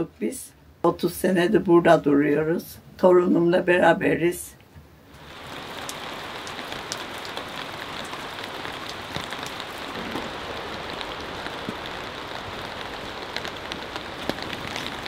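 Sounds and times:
steady rain: 0:05.1 - 0:15.0
raindrops tapping: 0:05.2 - 0:15.0.

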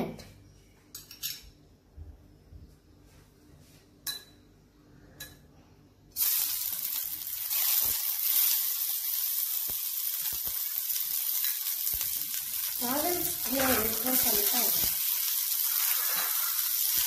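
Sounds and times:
vegetables sizzling in hot oil: 0:06.2 - 0:17.0.

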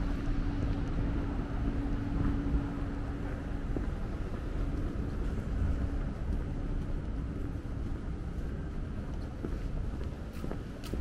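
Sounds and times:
faint hum: 0:00.0 - 0:11.0
low city rumble: 0:00.0 - 0:11.0.

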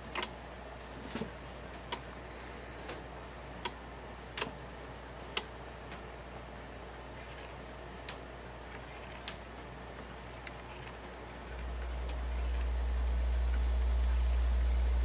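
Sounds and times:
turntable low hum: 0:08.4 - 0:15.0.

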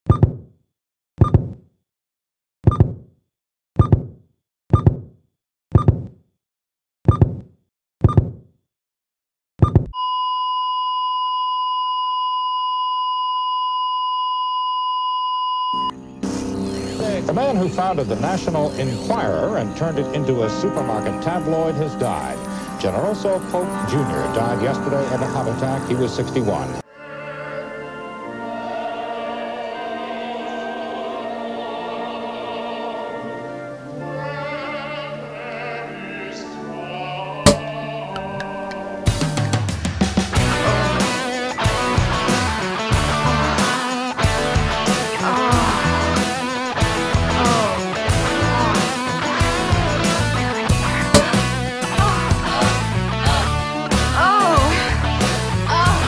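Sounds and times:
heart monitor flatline tone: 0:00.1 - 0:00.4, 0:09.6 - 0:16.0
heart monitor beat: 0:00.1 - 0:00.5, 0:01.2 - 0:01.6, 0:02.6 - 0:03.1, 0:03.8 - 0:05.1, 0:05.7 - 0:06.2, 0:07.1 - 0:08.4, 0:09.6 - 0:10.0
operatic singing: 0:16.9 - 0:39.6, 0:40.4 - 0:56.0
orchestra playing: 0:17.0 - 0:28.8.

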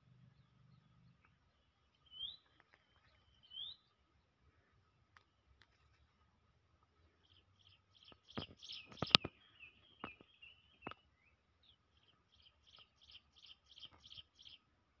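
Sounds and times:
small bird chirping: 0:00.0 - 0:04.0, 0:06.9 - 0:14.7.

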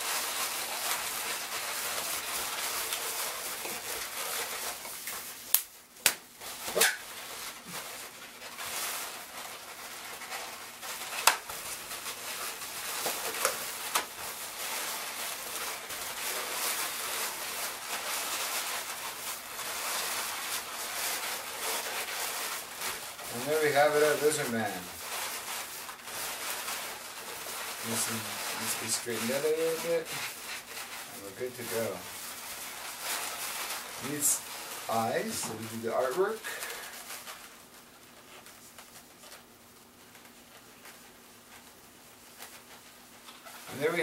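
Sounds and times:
balloons squeaking being twisted: 0:00.0 - 0:44.0.

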